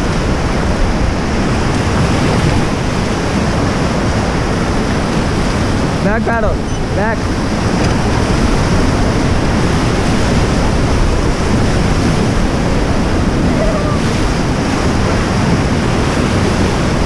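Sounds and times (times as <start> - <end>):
whitewater rapids rushing: 0.0 - 17.0.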